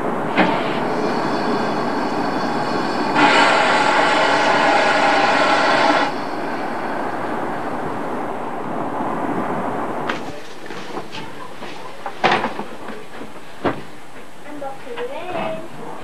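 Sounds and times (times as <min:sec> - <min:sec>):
train running: 0:00.0 - 0:16.0
steam locomotive whistle: 0:02.6 - 0:06.2.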